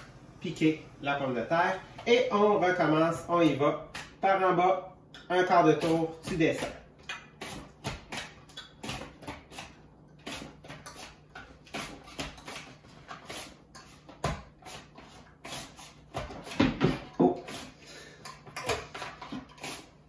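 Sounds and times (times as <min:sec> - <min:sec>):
potato scraping across mandoline blade: 0:05.6 - 0:07.8, 0:08.6 - 0:16.6, 0:17.4 - 0:17.8, 0:19.3 - 0:20.0.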